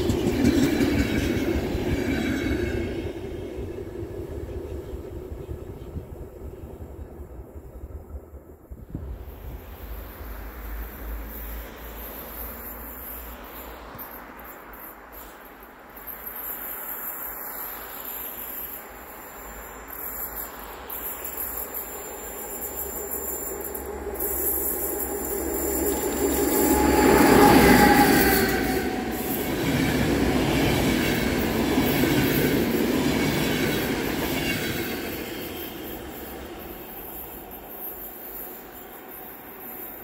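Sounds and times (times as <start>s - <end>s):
electric locomotive passing: 0.0s - 40.0s
train cars rolling by: 0.0s - 40.0s
wheels squealing: 11.1s - 40.0s.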